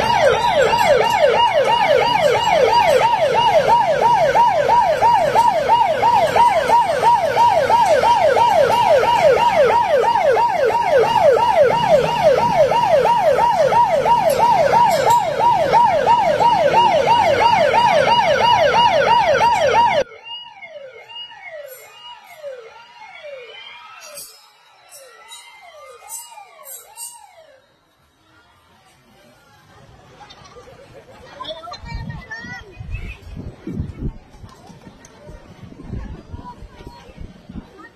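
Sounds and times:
electronic siren yelping: 0:00.0 - 0:27.6.

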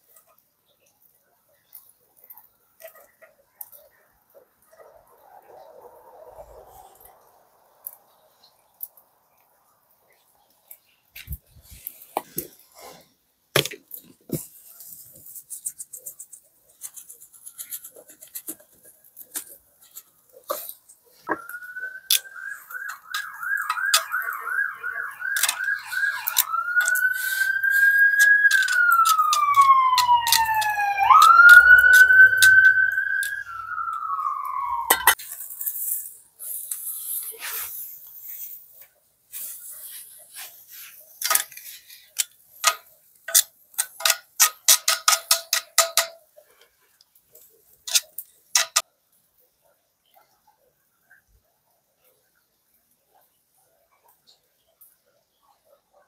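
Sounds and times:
emergency vehicle siren: 0:05.1 - 0:07.7, 0:21.3 - 0:35.2
campfire popping and crackling: 0:19.2 - 0:35.8
sharp clicks: 0:21.3 - 0:35.2.

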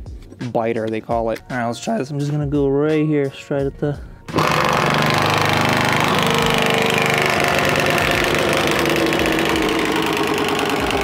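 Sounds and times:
drill-driven nibbler cutting sheet metal: 0:04.3 - 0:11.0.

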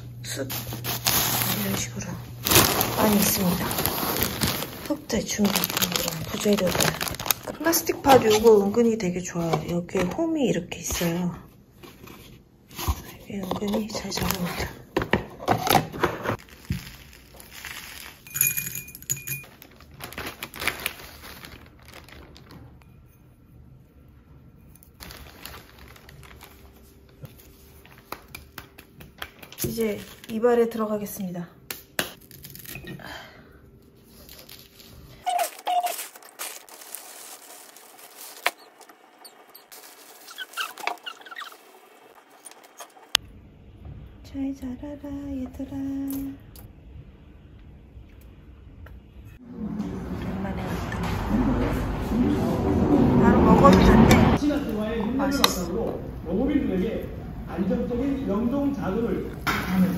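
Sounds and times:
potting mix scraping: 0:00.2 - 0:09.8, 0:34.2 - 0:43.2
light ringing clinks: 0:18.3 - 0:19.6.

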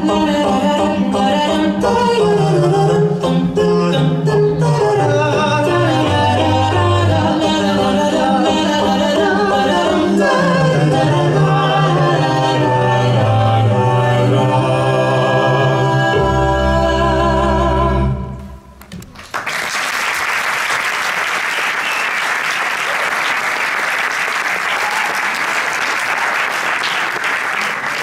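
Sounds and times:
choir singing: 0:00.0 - 0:18.5
audience applauding: 0:18.8 - 0:28.0.

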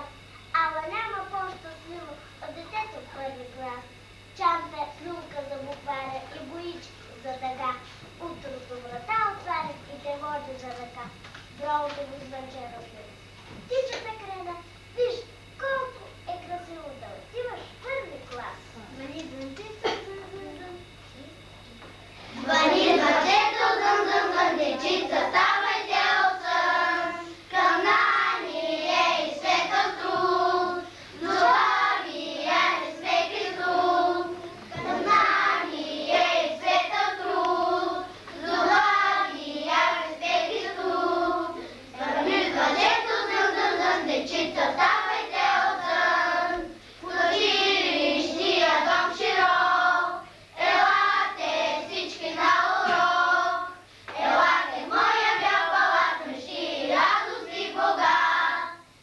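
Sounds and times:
children singing in unison: 0:22.4 - 0:58.8.

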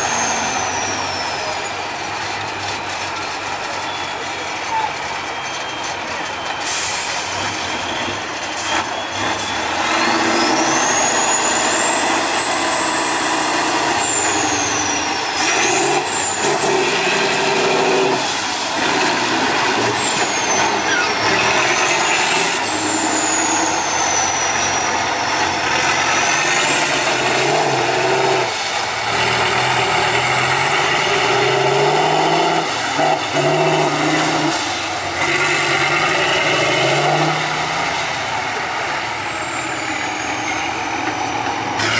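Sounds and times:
high whistle: 0:00.0 - 0:01.8, 0:03.7 - 0:24.9, 0:31.3 - 0:41.0
diesel truck engine revving: 0:00.0 - 0:41.9.

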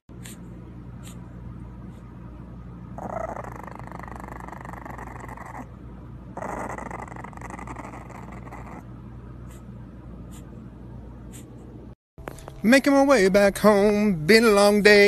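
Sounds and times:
puppy growling: 0:02.8 - 0:10.5.

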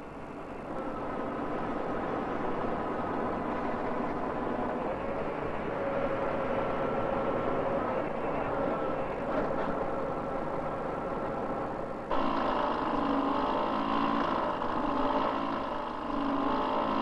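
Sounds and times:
steady machine noise: 0:00.0 - 0:17.0
small motor humming: 0:12.1 - 0:17.0.

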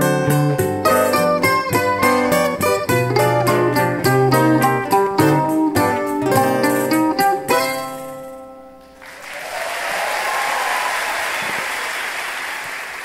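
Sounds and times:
mandolin and acoustic guitars: 0:00.0 - 0:09.0
audience applause: 0:09.0 - 0:13.0.

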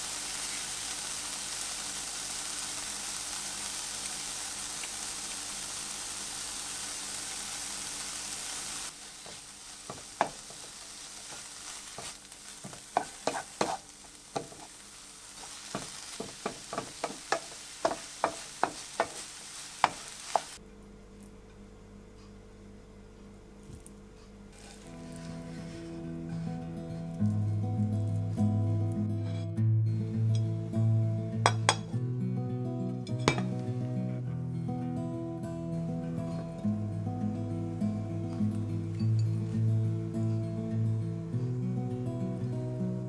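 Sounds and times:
food sizzling in frying pan: 0:00.0 - 0:20.6, 0:24.6 - 0:25.9, 0:30.3 - 0:31.9
wooden spatula scraping pan: 0:09.2 - 0:14.7, 0:24.6 - 0:26.5.

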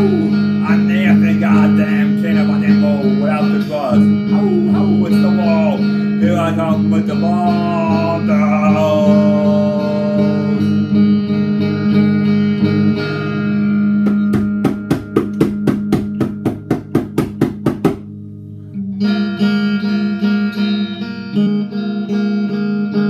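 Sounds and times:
electric guitar chords: 0:00.0 - 0:23.0
sharp percussive guitar hits: 0:13.8 - 0:18.2.

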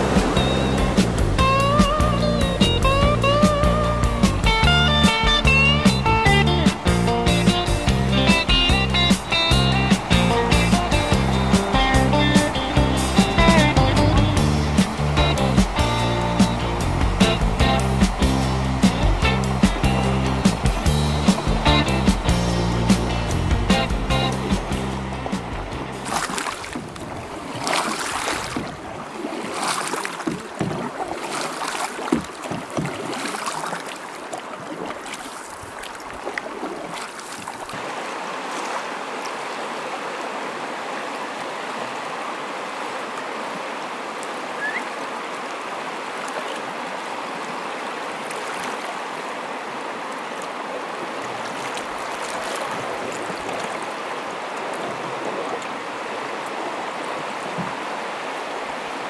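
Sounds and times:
river rapids rushing: 0:00.0 - 0:59.0
splashes and thumps: 0:09.2 - 0:38.8, 0:51.4 - 0:53.9.

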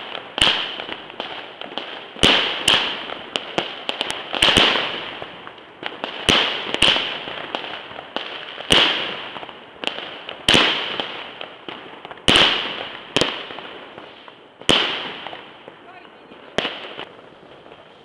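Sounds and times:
fireworks bursting with bangs: 0:00.0 - 0:18.0.

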